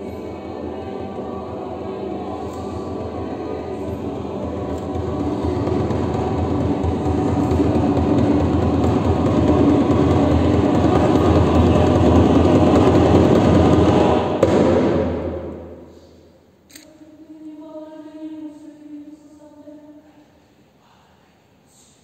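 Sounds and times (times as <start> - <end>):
choir singing soft chord: 0.0 - 16.2
loud dense rushing noise: 4.5 - 15.7.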